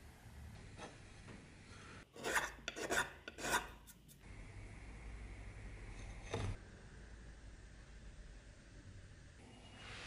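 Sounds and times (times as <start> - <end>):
metal file rasping on steel blade: 2.2 - 4.0.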